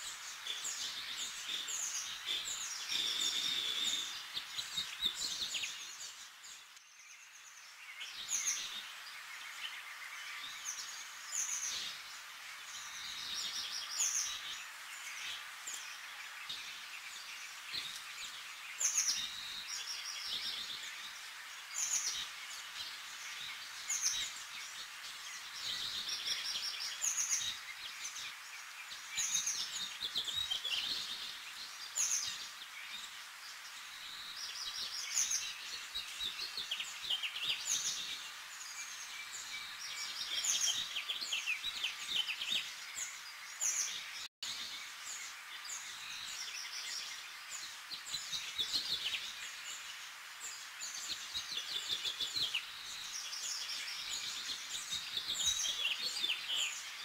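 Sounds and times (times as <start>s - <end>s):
small birds chirping and trilling: 0.0s - 57.0s
steady hiss: 0.0s - 57.0s.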